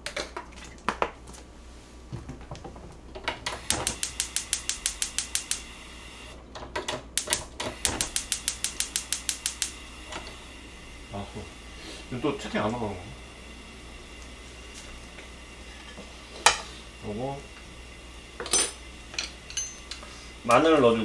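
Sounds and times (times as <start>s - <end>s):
gas stove igniter clicking: 3.4s - 5.7s, 6.8s - 10.4s.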